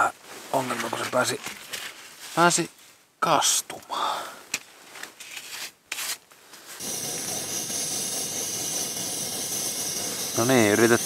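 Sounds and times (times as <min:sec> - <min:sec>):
stove burner hissing: 0:06.8 - 0:11.0.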